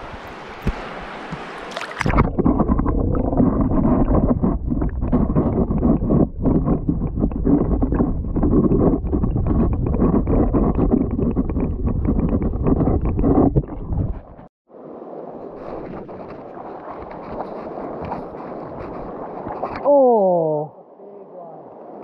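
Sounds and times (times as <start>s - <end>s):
stream water rushing: 0.0s - 4.2s
muffled underwater churning: 0.0s - 14.5s, 15.1s - 20.0s.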